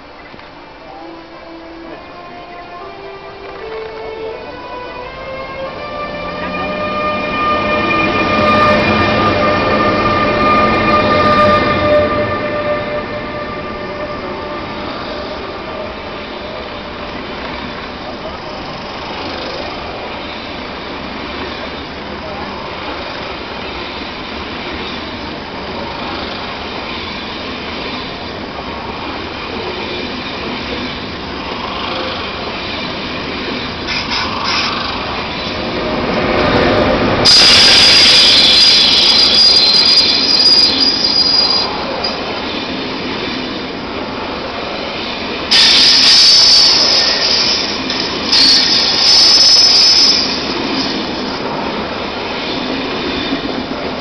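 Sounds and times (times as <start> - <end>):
train wheels rumbling on rail: 0.0 - 54.0
high wheel squeal: 5.8 - 17.7, 33.9 - 42.2, 45.5 - 51.3.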